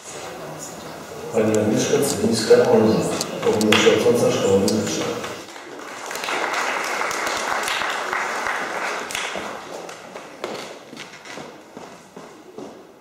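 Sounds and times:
audience applauding: 3.7 - 10.9.

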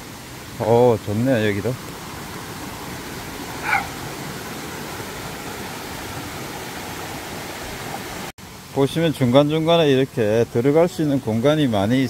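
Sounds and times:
stream rushing over rocks: 0.0 - 12.0
short high falling call: 3.6 - 4.0.

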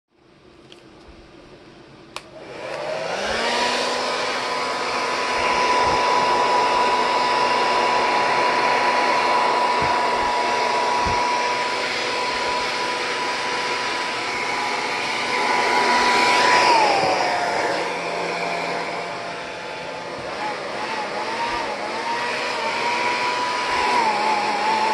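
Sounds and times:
hair dryer switch click: 2.1 - 2.9
hair dryer blowing: 2.2 - 24.9.

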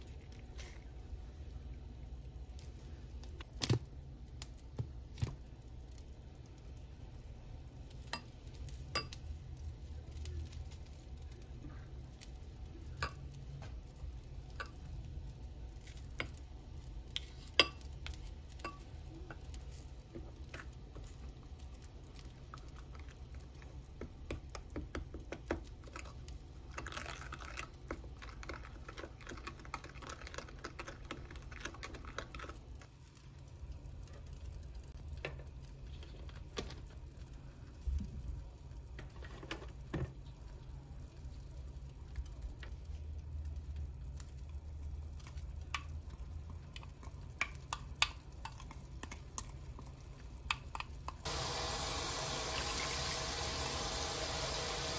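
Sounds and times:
hissing noise: 51.3 - 54.9.

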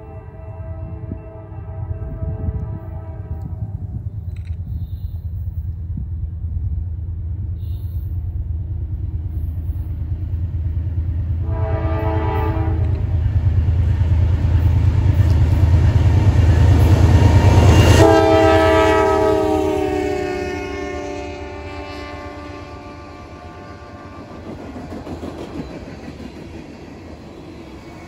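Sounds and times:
locomotive horn blast: 0.0 - 4.0, 11.4 - 13.2, 17.2 - 24.5
diesel locomotive engines rumbling: 0.0 - 28.0.

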